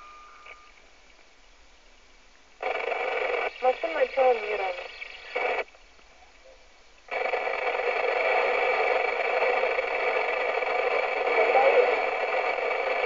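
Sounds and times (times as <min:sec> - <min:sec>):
radio static rush: 0:02.6 - 0:05.8, 0:07.1 - 0:13.0.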